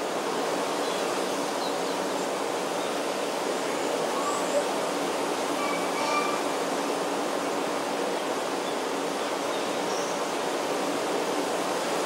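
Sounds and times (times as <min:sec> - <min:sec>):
faint bird calls: 0:05.6 - 0:06.5.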